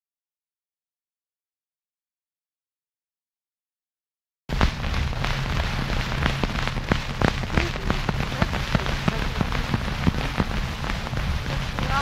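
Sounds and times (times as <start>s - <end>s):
crackling hiss of cylinder playback: 4.5s - 12.0s
low hum: 4.5s - 12.0s.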